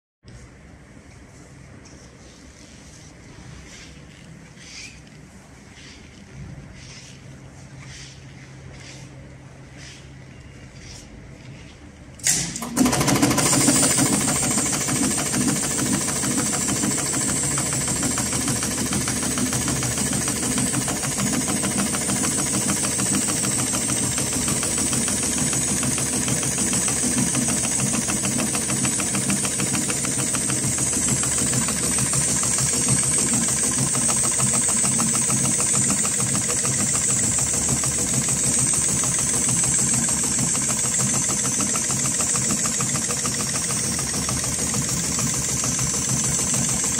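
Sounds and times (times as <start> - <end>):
sewing machine needle clatter: 12.2 - 46.9.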